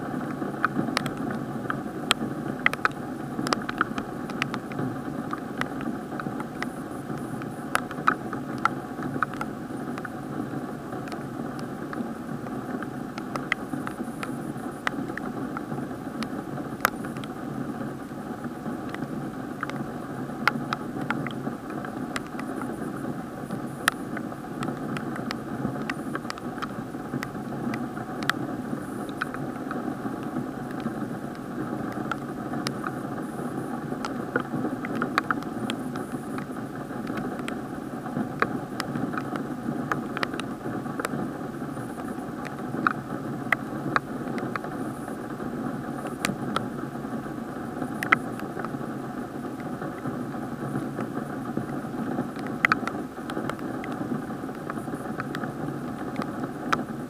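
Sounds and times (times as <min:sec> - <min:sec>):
muffled hiss: 0:00.0 - 0:57.0
raindrops tapping on plastic housing: 0:00.6 - 0:17.4, 0:23.4 - 0:41.3, 0:49.5 - 0:57.0.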